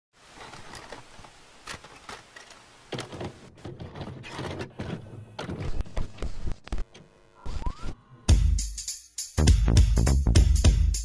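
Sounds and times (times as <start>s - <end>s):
tape hiss: 0.2s - 3.5s, 5.8s - 8.3s
tape deck clicks and clunks: 0.4s - 7.1s.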